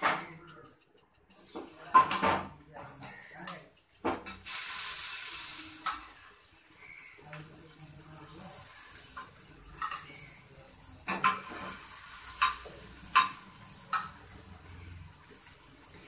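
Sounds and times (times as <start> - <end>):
vegetables sizzling in oil: 4.4 - 16.0.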